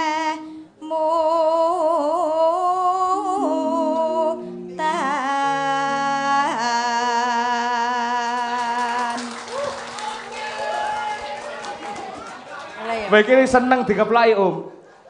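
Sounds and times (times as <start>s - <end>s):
woman singing into a microphone: 0.0s - 9.5s
steady instrumental notes: 3.2s - 6.5s.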